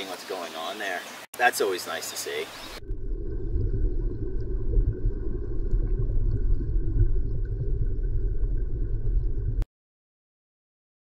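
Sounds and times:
muffled underwater water rumble: 2.6s - 9.7s.

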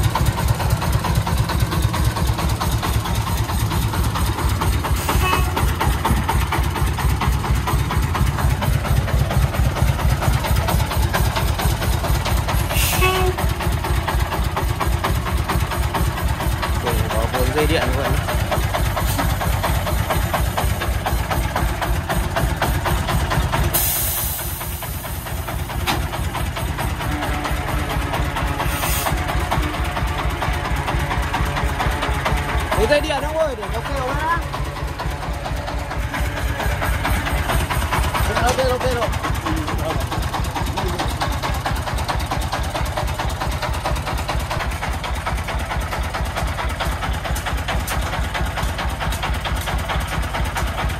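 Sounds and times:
diesel engine chugging: 0.0s - 50.9s
hiss of air: 23.7s - 25.8s, 28.7s - 29.2s.

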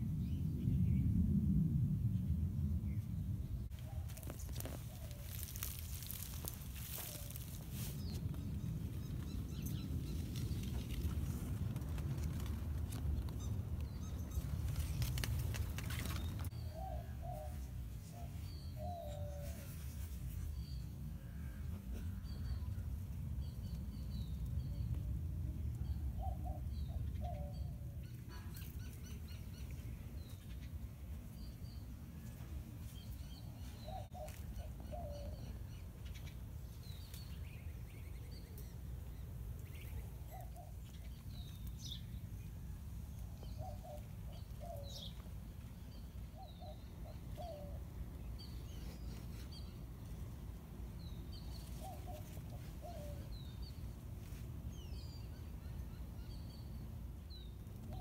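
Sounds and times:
low steady rumble: 0.0s - 16.8s.

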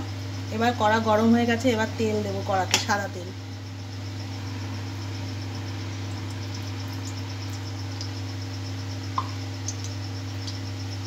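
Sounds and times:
low hum: 3.3s - 11.0s
faint ticks: 9.2s - 10.7s.

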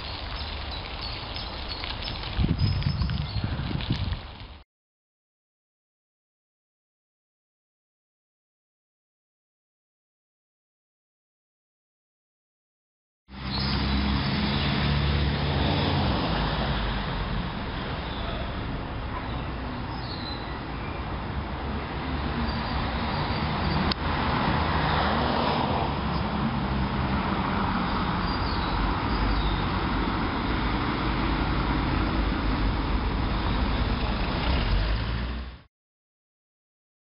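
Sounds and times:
road traffic rumble: 0.0s - 4.6s, 13.3s - 35.7s.

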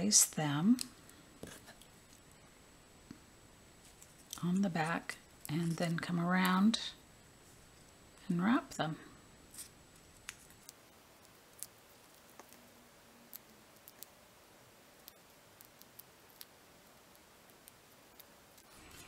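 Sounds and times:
faint ticks and handling noise: 0.6s - 3.2s, 3.8s - 6.8s, 9.5s - 19.0s.

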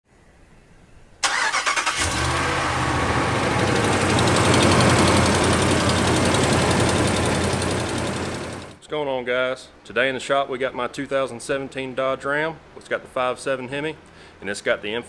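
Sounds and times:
engine cranking and idling: 1.2s - 8.8s
exhaust ticking: 1.3s - 8.8s.

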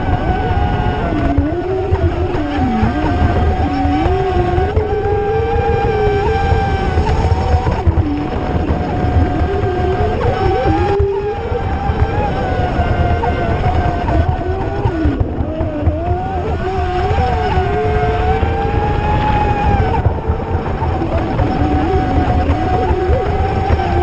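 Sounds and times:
speedboat motor whines: 0.0s - 24.0s
steady low rumble: 18.2s - 24.0s.

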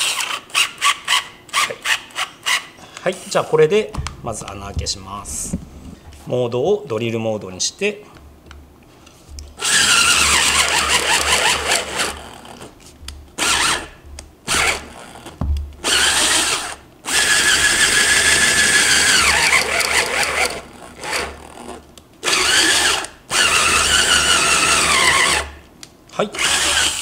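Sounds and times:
drill motor whining into wood: 0.0s - 2.7s, 9.6s - 12.7s, 13.4s - 25.6s, 26.4s - 27.0s.

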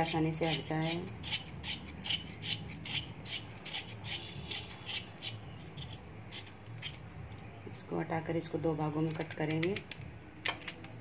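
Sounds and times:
knife scraping gourd skin: 0.0s - 7.1s.

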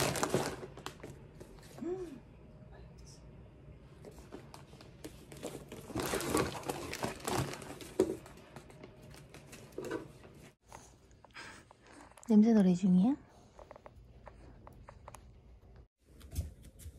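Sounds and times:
plastic packaging crinkling: 0.0s - 1.2s, 5.3s - 8.4s.

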